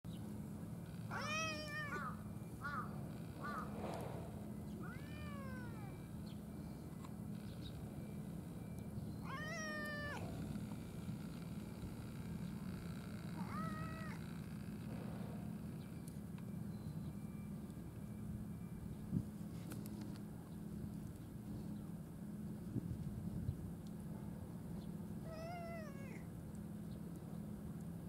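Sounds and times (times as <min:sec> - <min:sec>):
steady low hum: 0:00.1 - 0:28.0
cat meowing: 0:01.1 - 0:02.9, 0:04.8 - 0:06.1, 0:09.2 - 0:10.4, 0:13.4 - 0:14.3, 0:25.2 - 0:26.2.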